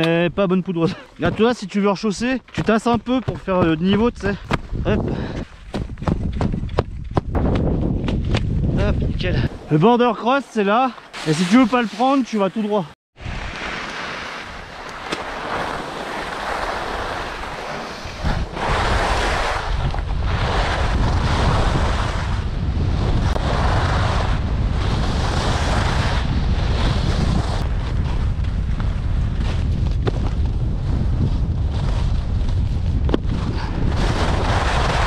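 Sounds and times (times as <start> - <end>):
wind buffeting microphone: 3.0 - 9.7, 18.0 - 35.0
skis hissing and scraping on snow: 9.2 - 22.4, 23.0 - 28.2, 33.3 - 35.0.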